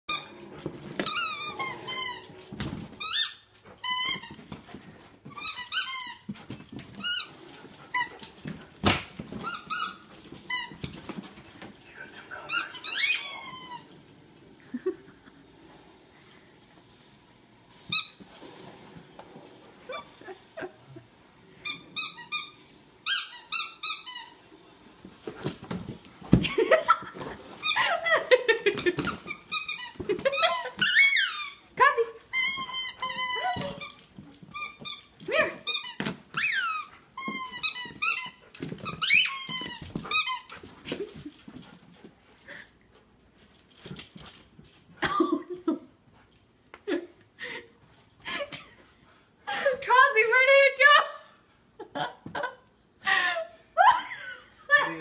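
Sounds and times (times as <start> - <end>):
squeaky rubber toy squeaking: 3.0 - 4.3, 5.3 - 6.3, 12.5 - 13.9, 21.6 - 24.4, 29.0 - 31.7, 32.3 - 40.5.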